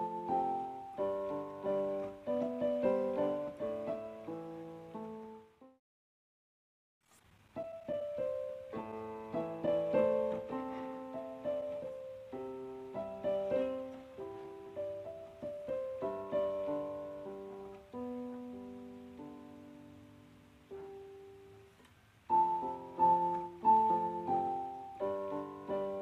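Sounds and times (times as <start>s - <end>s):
piano notes and chords: 0.0s - 5.8s, 7.4s - 26.0s.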